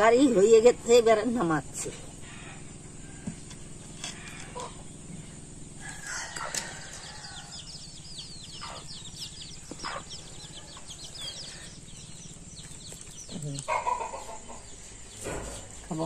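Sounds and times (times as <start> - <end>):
chickens calling: 0.0 - 16.0
steady low hum: 0.0 - 16.0
high peeping chirps: 4.6 - 16.0.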